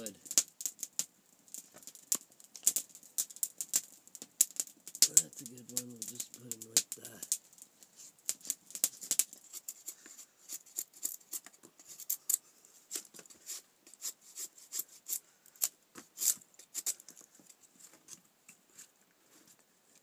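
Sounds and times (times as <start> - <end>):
knife shaving wood: 6.8 - 17.6.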